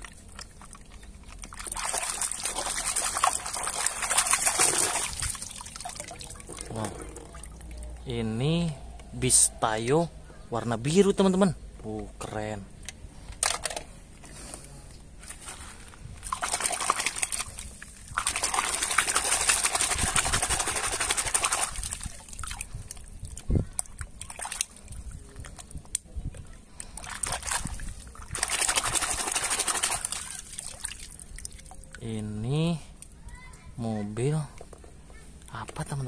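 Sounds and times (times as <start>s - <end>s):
water sloshing in a bucket: 0.0s - 8.1s, 15.2s - 33.2s.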